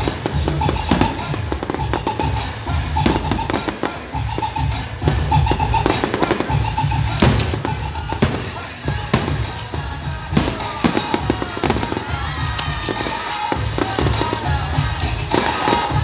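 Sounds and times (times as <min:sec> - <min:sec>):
firework shells bursting: 0:00.0 - 0:16.0
music with pulsing bass beat: 0:00.0 - 0:16.0.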